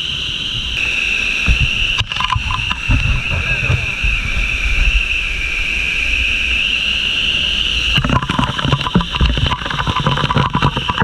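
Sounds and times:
waterfall pouring: 0.8s - 11.0s
rapid clicks and knocks: 8.0s - 11.0s.

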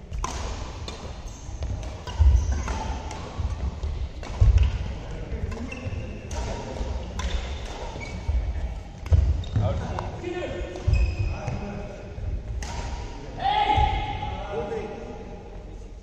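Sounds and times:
rackets striking shuttlecock: 0.1s - 8.4s, 12.6s - 13.2s.

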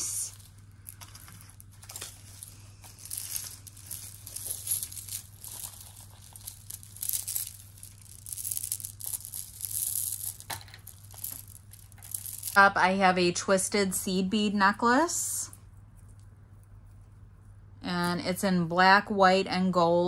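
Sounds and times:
jewelry beads and chains clinking: 0.0s - 12.8s.

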